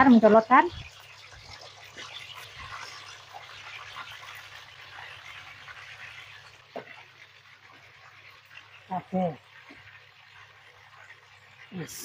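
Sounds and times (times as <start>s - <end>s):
crackles and spits of oil: 0.0s - 12.0s
potatoes deep-frying in oil: 0.0s - 12.0s.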